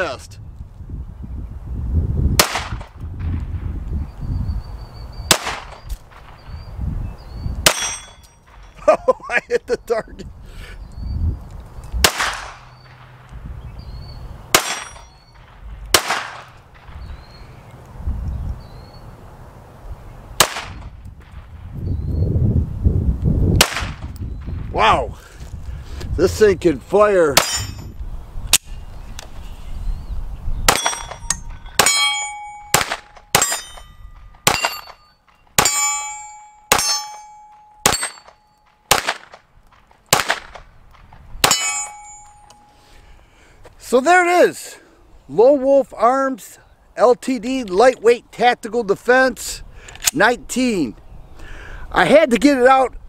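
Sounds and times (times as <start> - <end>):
pistol shots: 2.4 - 2.9, 5.3 - 6.4, 7.6 - 8.7, 12.0 - 13.2, 14.5 - 17.2, 20.4 - 20.9, 23.6 - 24.1, 30.7 - 35.0, 35.6 - 39.4, 40.1 - 42.3
gunshots with echo: 5.3 - 6.4, 12.0 - 13.3, 14.5 - 17.1, 30.7 - 35.0, 38.9 - 39.4, 40.1 - 40.6
steel target ringing ping: 7.7 - 8.8, 14.6 - 15.4, 27.4 - 28.0, 30.7 - 38.6, 41.4 - 42.8.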